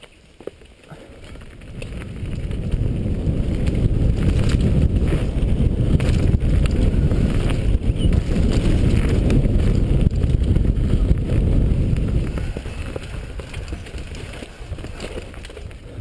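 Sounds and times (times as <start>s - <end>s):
bike clicks and rattles: 0.0s - 16.0s
wind buffeting microphone: 0.9s - 16.0s.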